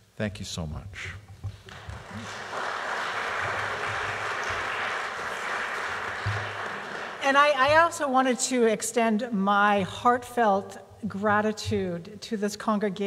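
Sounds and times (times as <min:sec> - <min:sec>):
audience applauding: 0:01.5 - 0:07.8.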